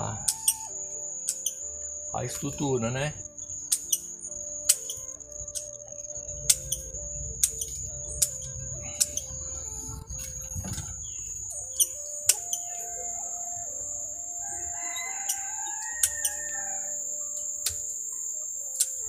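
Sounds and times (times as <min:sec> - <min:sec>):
background music: 0:00.0 - 0:19.0
steady high whine: 0:00.0 - 0:19.0
pruning shears snipping twigs: 0:00.3 - 0:01.6, 0:07.4 - 0:09.3, 0:11.6 - 0:12.8.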